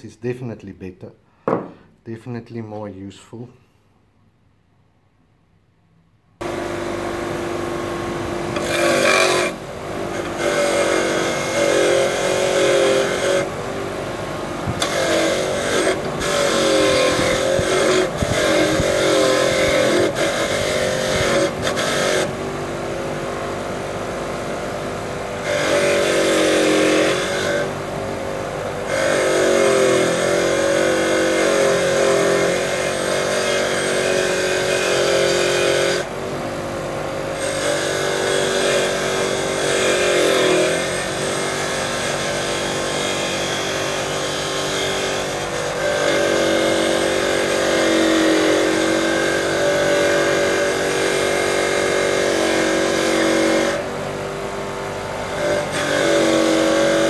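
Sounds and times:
grinder motor humming: 0:06.4 - 0:57.0
wire brush scratching metal: 0:08.6 - 0:13.5, 0:14.8 - 0:22.3.

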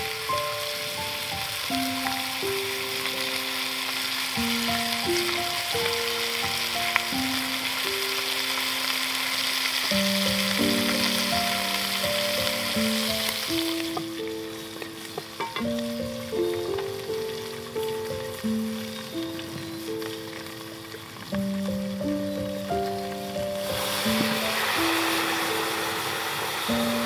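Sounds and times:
meat sizzling in hot fat: 0:00.0 - 0:27.0
music of long held notes: 0:00.0 - 0:27.0
chopsticks tapping: 0:13.8 - 0:15.9.

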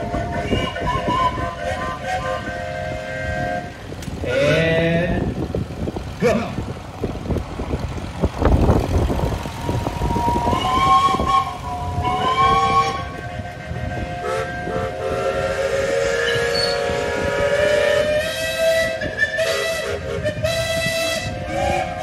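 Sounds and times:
steam whistles blowing: 0:00.0 - 0:04.6, 0:09.6 - 0:22.0
tractor engine running: 0:00.0 - 0:22.0.

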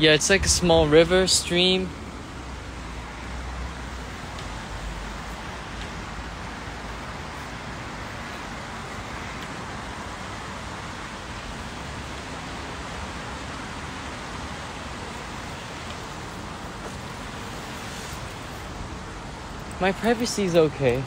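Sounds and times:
even hiss: 0:13.2 - 0:21.0.

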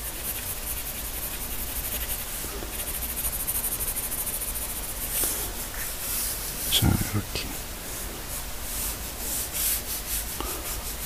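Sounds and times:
pencil scratching on paper: 0:00.0 - 0:05.9.

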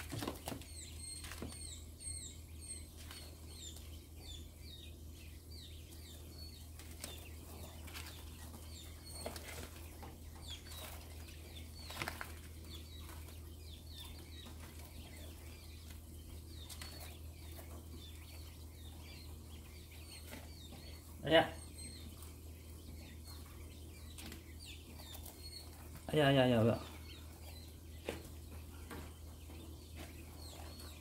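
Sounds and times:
pecking and scratching in bedding: 0:00.0 - 0:01.7, 0:05.7 - 0:21.2
quails peeping: 0:00.0 - 0:31.0.

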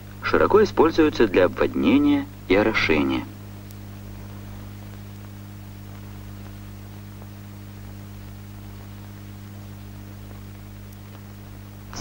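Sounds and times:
even hiss: 0:00.0 - 0:12.0
low electrical hum: 0:00.0 - 0:12.0
faint ticks: 0:03.6 - 0:12.0.

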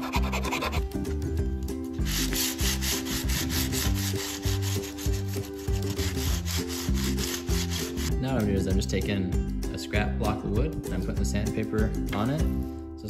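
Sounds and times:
sandpaper rubbing metal frets: 0:00.0 - 0:00.9, 0:02.0 - 0:08.2
background music: 0:00.0 - 0:13.0.

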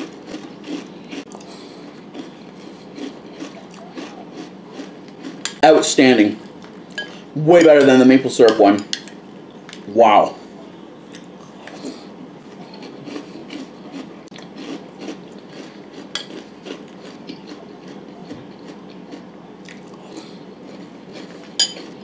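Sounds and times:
chewing crunchy cereal: 0:00.0 - 0:05.6, 0:11.0 - 0:22.0.

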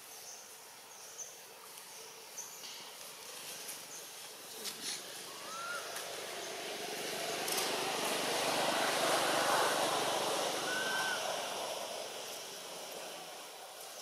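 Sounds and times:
vehicle passing by: 0:04.8 - 0:14.0.

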